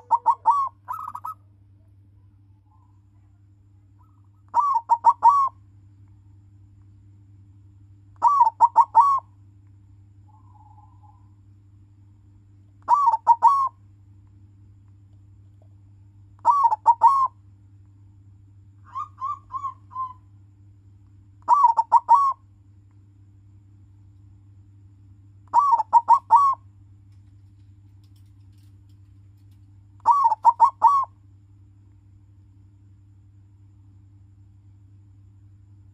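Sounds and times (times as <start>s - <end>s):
dove cooing: 0.0s - 1.5s, 4.0s - 5.6s, 8.2s - 9.3s, 10.3s - 11.3s, 12.9s - 13.8s, 16.4s - 17.4s, 18.9s - 20.3s, 21.4s - 22.4s, 25.5s - 26.6s, 30.0s - 31.2s
steady low hum: 0.0s - 35.9s.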